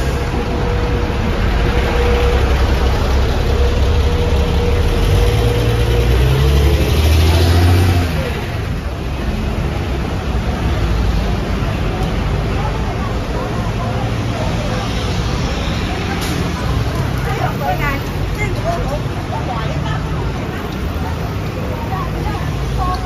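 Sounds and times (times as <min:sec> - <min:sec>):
bus engines running: 0:00.0 - 0:23.0
vehicle accelerating past: 0:01.5 - 0:08.6.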